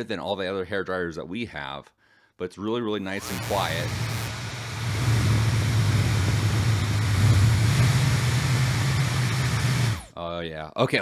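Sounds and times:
hair dryer running: 3.2 - 10.1.

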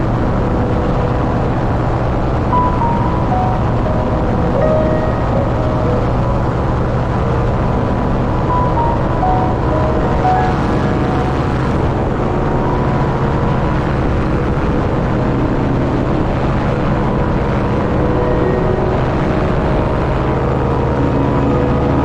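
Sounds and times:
propeller engine drone: 0.0 - 22.0.

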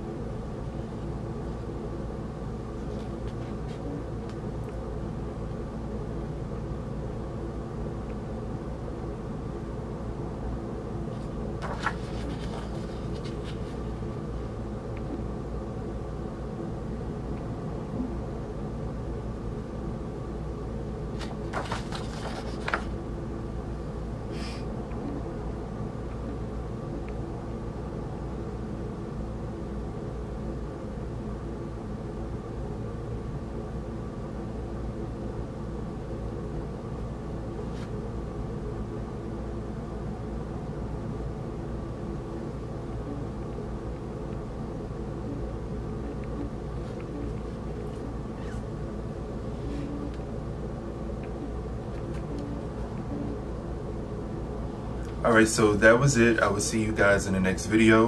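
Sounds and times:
steady room hum: 0.0 - 58.0
record sleeves rustling: 11.1 - 14.2, 21.2 - 23.0.

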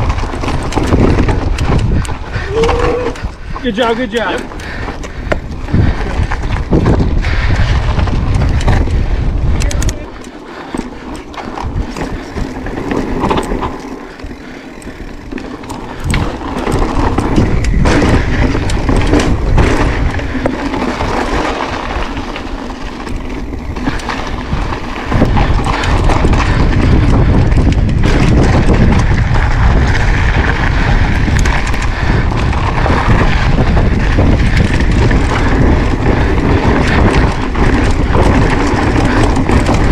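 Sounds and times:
bike clattering over bumps: 0.0 - 39.9
bike tyres crunching on sand: 0.0 - 39.9
wind buffeting microphone: 0.0 - 39.9.

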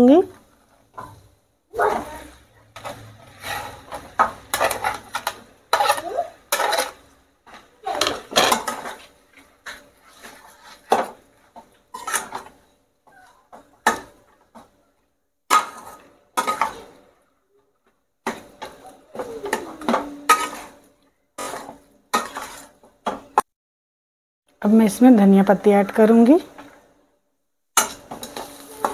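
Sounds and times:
metal spatula scraping a steel pan: 1.9 - 11.2, 11.9 - 12.6, 15.5 - 16.9, 18.6 - 20.8, 21.4 - 22.8, 27.8 - 28.9.

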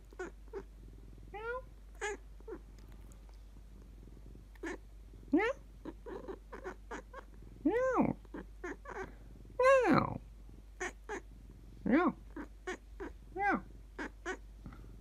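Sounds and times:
cat meowing: 1.4 - 2.6, 12.4 - 14.4.

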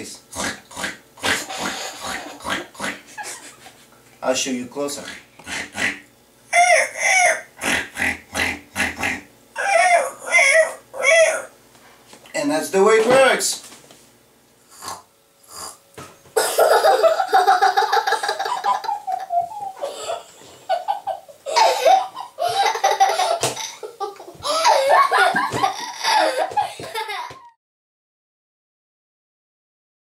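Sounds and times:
young child laughing: 1.4 - 3.9, 16.4 - 27.6.

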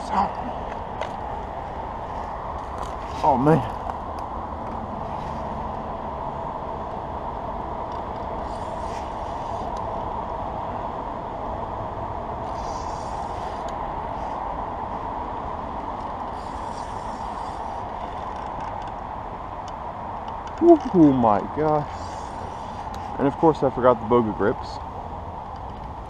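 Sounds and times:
traffic rumble: 0.0 - 26.0
fishing reel rasping: 12.5 - 13.7, 16.3 - 17.9.

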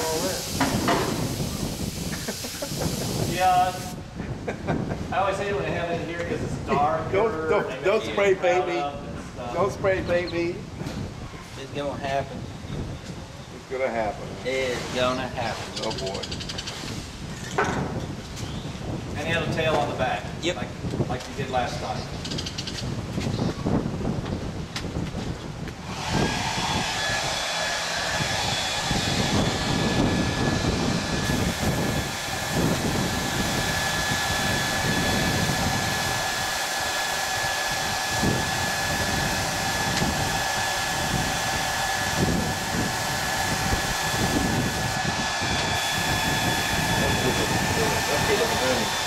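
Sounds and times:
hair dryer blowing: 0.0 - 4.0, 25.7 - 49.0.

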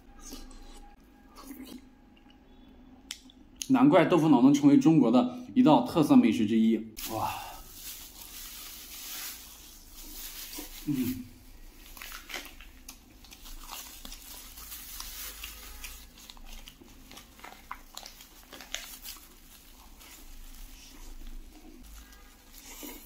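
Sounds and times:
plastic bag crinkling: 7.0 - 23.0
crunchy chewing: 11.9 - 23.0.

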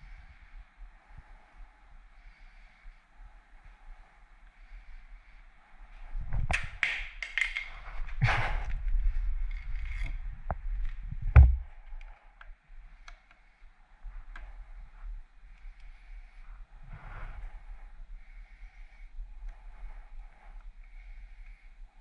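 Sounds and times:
loud knock: 11.4 - 11.6.

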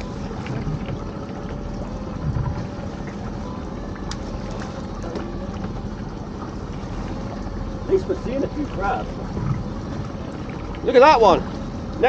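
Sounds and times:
boat engine rumble: 0.0 - 12.0
wind on microphone: 2.1 - 3.2.

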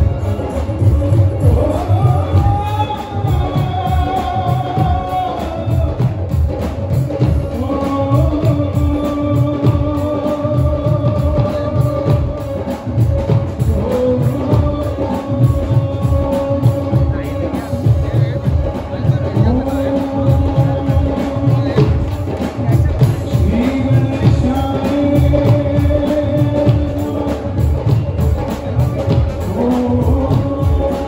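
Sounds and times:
band with drums and keyboard: 0.0 - 31.0
man singing long notes: 0.0 - 31.0
steady drum beat: 0.0 - 31.0.

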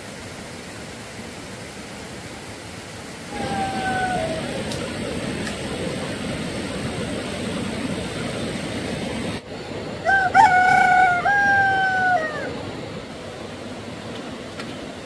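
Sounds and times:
steady rushing noise: 0.0 - 15.0
rooster crowing: 3.3 - 4.5, 10.0 - 12.5.

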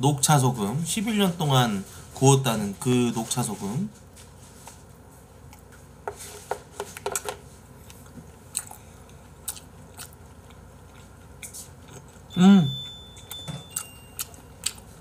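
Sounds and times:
person chewing: 5.4 - 5.8, 6.6 - 15.0.

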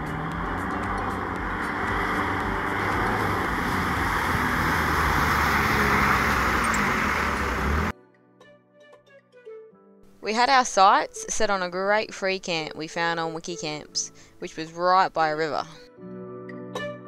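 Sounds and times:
vehicle engine running: 0.0 - 7.9
water splashing off tyres: 0.0 - 7.9.

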